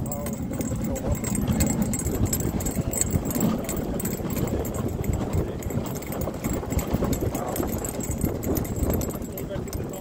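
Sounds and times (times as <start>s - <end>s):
sled scraping over snow: 0.0s - 10.0s.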